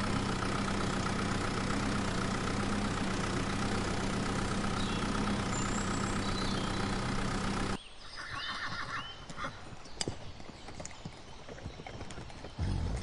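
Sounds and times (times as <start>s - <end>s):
tractor engine idling: 0.0s - 7.8s, 12.6s - 13.0s
horse neighing: 8.1s - 9.6s
hoof clip-clops: 8.7s - 13.0s.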